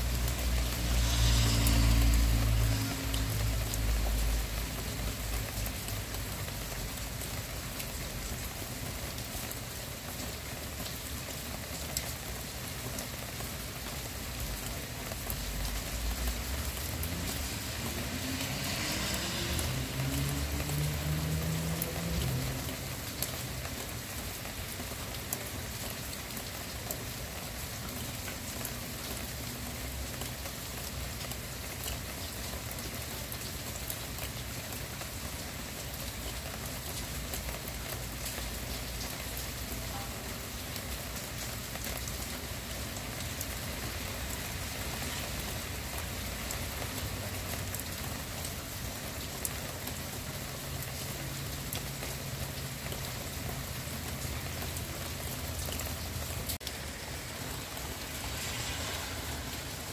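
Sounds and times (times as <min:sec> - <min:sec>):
steady rain falling: 0:00.0 - 0:59.9
low rising rumble: 0:56.6 - 0:59.9.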